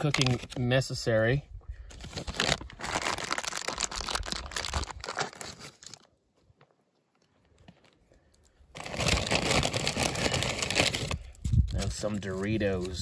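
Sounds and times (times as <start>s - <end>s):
plastic packaging crinkling and tearing: 0.0s - 0.8s, 1.9s - 6.1s, 8.7s - 13.0s.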